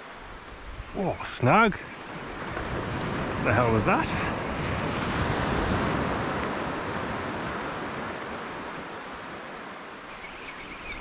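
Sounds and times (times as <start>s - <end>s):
surf breaking on beach: 1.0s - 9.5s.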